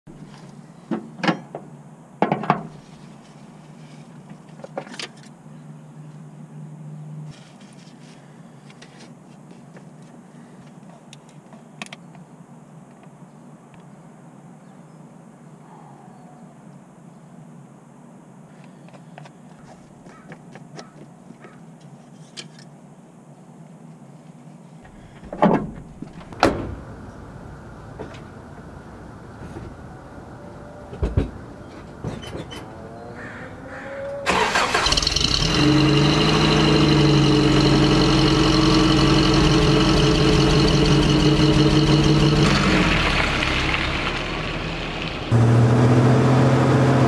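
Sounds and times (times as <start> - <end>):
pickup engine starting and idling: 34.2 - 47.0.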